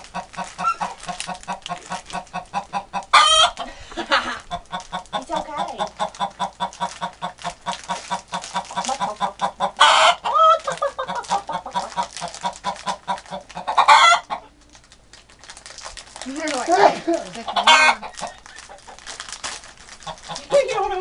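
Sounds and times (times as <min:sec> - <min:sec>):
hen squawking: 0:00.0 - 0:03.6, 0:04.3 - 0:14.5, 0:17.4 - 0:19.1, 0:20.0 - 0:21.0
hen clucking: 0:00.0 - 0:14.6, 0:17.3 - 0:19.2, 0:20.0 - 0:21.0.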